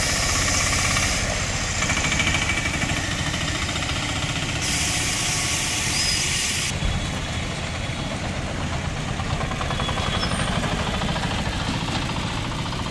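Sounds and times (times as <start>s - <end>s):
hiss: 0.0s - 2.0s, 4.5s - 6.7s
autorickshaw engine rumbling: 0.0s - 12.9s.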